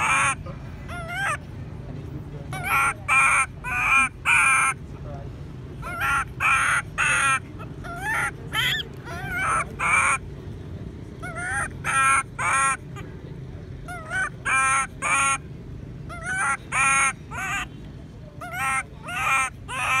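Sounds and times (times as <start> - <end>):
baby monkey crying: 0.0 - 1.4, 2.5 - 4.8, 5.8 - 10.2, 11.2 - 12.8, 13.9 - 15.4, 16.1 - 17.7, 18.4 - 20.0.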